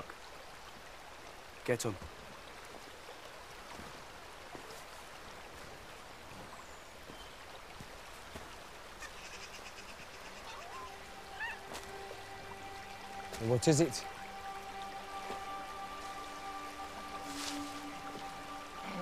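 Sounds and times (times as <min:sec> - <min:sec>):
stream rushing over rocks: 0:00.0 - 0:19.0
soft sustained music score: 0:09.4 - 0:19.0.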